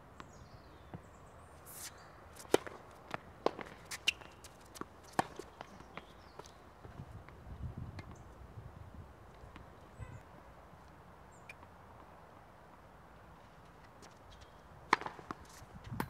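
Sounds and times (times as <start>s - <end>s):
racket striking tennis ball: 1.7s - 6.1s, 14.9s - 16.0s.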